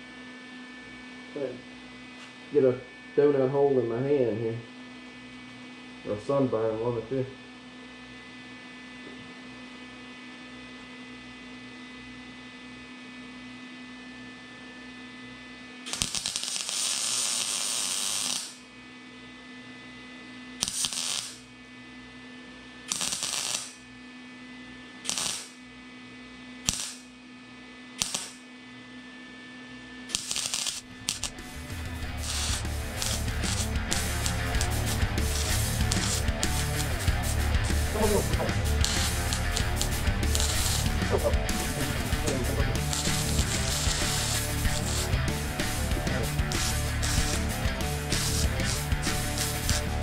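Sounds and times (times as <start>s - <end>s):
steady electrical hum: 0.0s - 50.0s
welder arcing: 15.8s - 18.7s, 20.6s - 21.5s, 22.8s - 23.8s, 25.0s - 25.7s, 26.6s - 27.2s, 27.9s - 28.5s, 30.1s - 50.0s.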